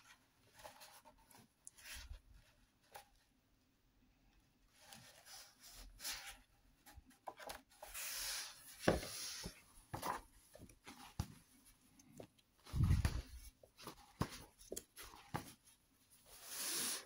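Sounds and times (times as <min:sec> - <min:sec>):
book pages rustling: 0:04.7 - 0:17.0.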